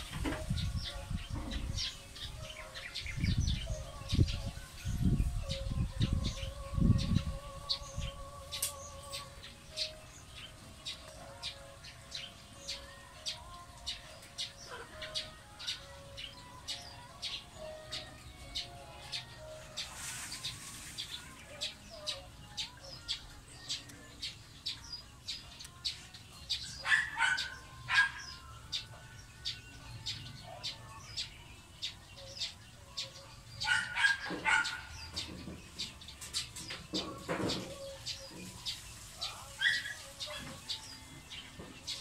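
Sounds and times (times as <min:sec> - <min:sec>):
sparrows chirping: 0:00.0 - 0:42.0.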